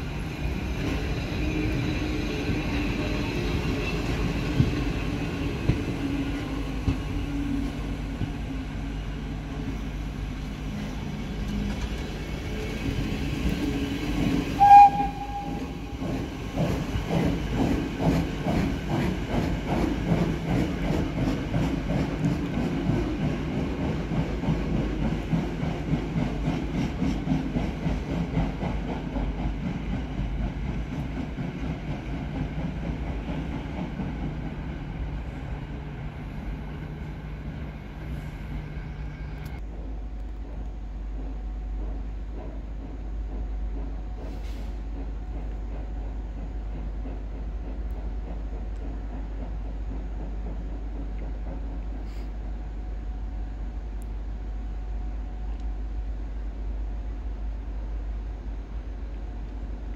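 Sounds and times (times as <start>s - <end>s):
rhythmic steam exhaust beats: 12.5s - 34.8s, 39.6s - 53.7s
steam locomotive whistle: 14.5s - 16.0s.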